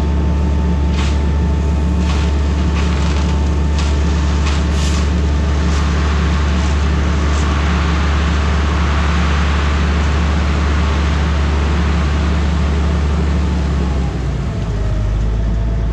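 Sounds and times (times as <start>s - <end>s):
truck diesel engine running: 0.0s - 15.9s.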